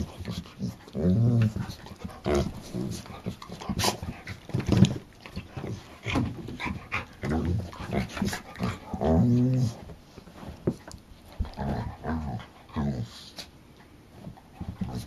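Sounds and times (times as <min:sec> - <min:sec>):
dogs growling and grunting: 0:00.0 - 0:09.9, 0:11.4 - 0:13.4.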